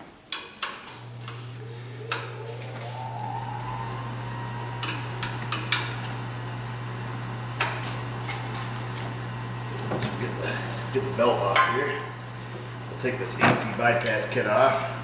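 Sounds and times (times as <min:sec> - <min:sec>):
faint rising whine: 0:01.0 - 0:07.8
machine humming: 0:01.0 - 0:09.7.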